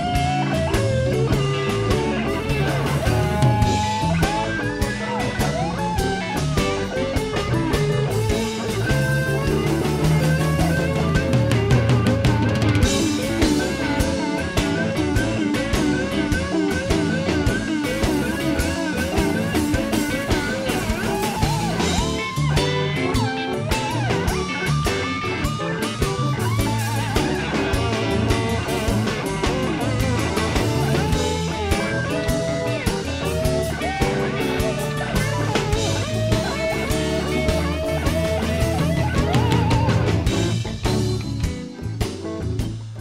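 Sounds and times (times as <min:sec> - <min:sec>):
blues guitar with bent notes: 0:00.0 - 0:43.0
drum kit: 0:00.0 - 0:43.0.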